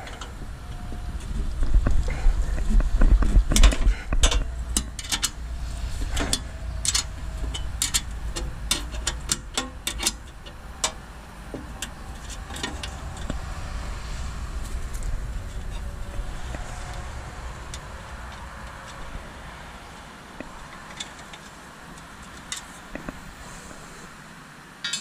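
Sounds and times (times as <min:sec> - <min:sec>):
low rumble: 0:00.0 - 0:20.9
metal tools clinking on metal: 0:06.0 - 0:11.0.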